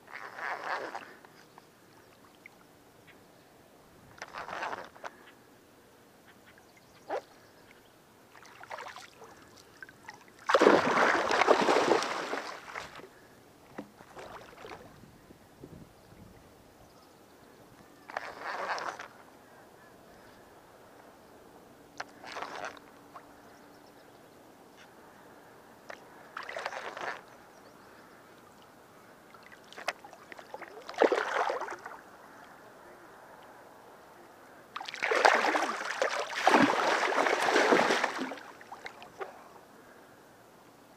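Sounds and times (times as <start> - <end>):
faint small splashes: 7.1 - 13.2, 13.8 - 15.0, 22.0 - 23.4, 25.8 - 27.3, 28.4 - 32.6, 34.7 - 39.6
water splashing: 8.3 - 13.1, 26.4 - 27.2, 29.3 - 32.0, 34.8 - 39.4.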